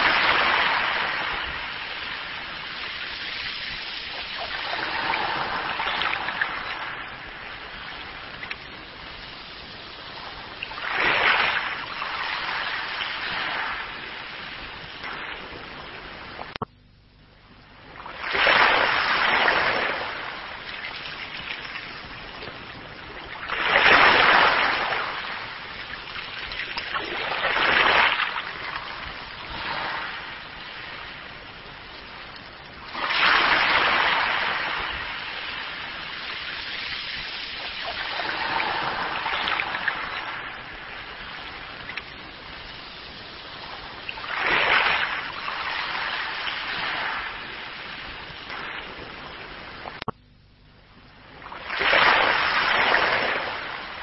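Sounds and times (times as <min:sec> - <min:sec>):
waves washing up a beach: 0:00.0 - 0:16.7, 0:17.8 - 0:50.1, 0:51.2 - 0:54.0.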